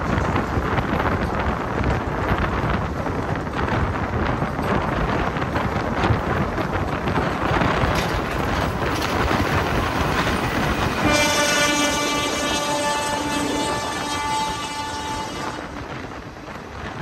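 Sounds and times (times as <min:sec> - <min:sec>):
train rail and wind rush: 0:00.0 - 0:17.0
wheel clicks over rail joints: 0:03.2 - 0:11.0.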